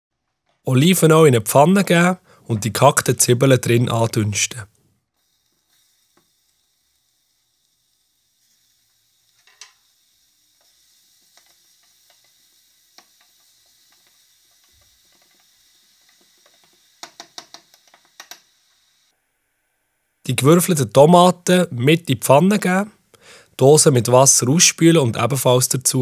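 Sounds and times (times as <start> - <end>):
onions sizzling in oil: 5.2 - 20.2.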